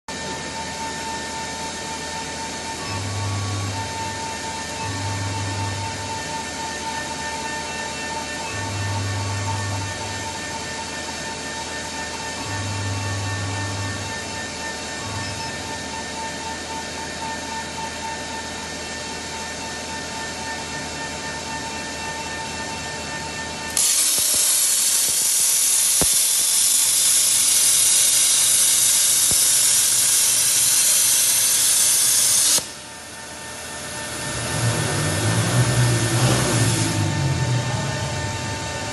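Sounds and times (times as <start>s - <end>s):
machine hum with faint whine: 0.1s - 38.9s
plasma torch cutting metal hiss: 23.8s - 32.8s, 33.4s - 37.0s.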